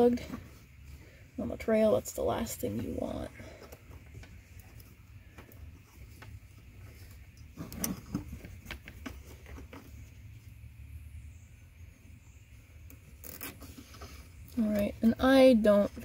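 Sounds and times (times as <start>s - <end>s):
faint low hum: 0.0s - 16.0s
zip tie rustling and knocking: 3.8s - 10.2s, 13.0s - 14.2s.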